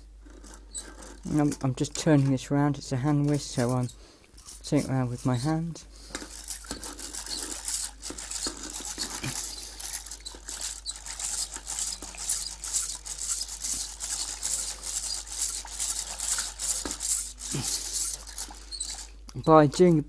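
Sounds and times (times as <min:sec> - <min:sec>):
rotary egg beater whirring: 0:04.4 - 0:19.3.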